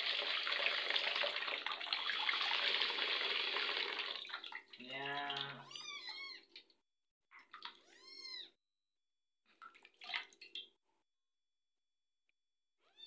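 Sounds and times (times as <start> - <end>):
running water: 0.0 - 6.3
kitten meowing: 5.6 - 6.5, 7.8 - 8.6.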